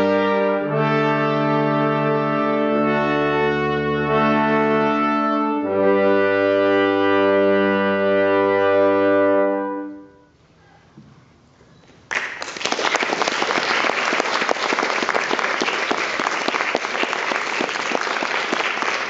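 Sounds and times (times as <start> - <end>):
brass quintet holding a chord: 0.0 - 10.4
audience applause: 12.1 - 19.0.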